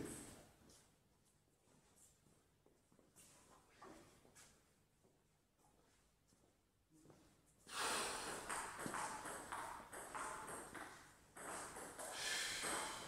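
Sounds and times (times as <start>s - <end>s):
table tennis ball bouncing: 8.2s - 13.0s.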